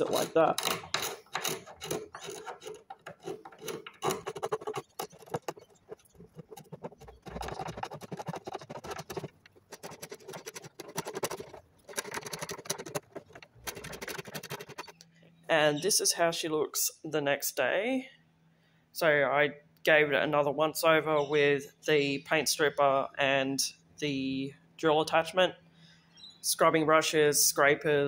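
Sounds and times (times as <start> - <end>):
scraper blade scraping wood: 0.0 - 15.0.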